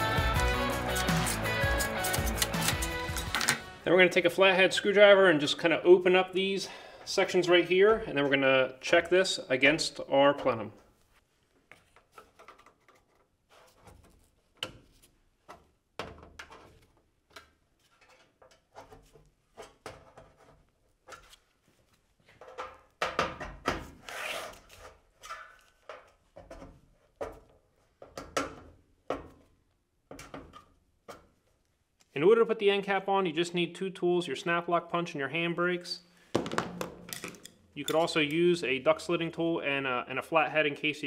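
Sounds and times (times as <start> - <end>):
screwdriver scraping metal: 0.4 - 3.6.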